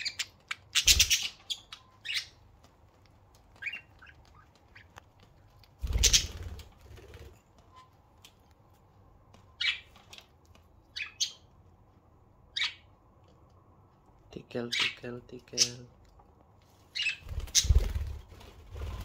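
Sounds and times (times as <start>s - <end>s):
budgerigars chirping and squawking: 0.0s - 2.4s, 3.6s - 5.0s, 5.8s - 6.5s, 9.6s - 10.0s, 10.9s - 11.5s, 12.5s - 12.9s, 16.9s - 18.0s.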